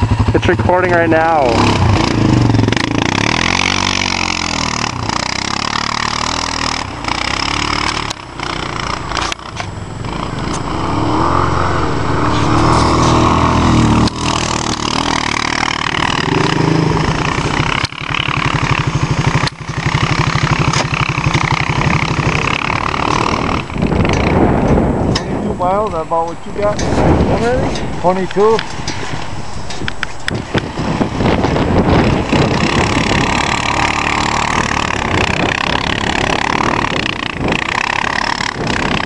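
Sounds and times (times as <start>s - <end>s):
atv engine idling: 0.0s - 26.8s
atv engine revving: 0.0s - 39.0s.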